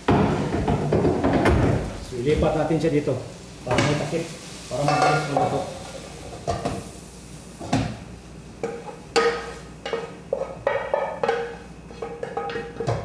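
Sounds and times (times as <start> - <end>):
pan knocking against metal pot: 8.6 - 13.0.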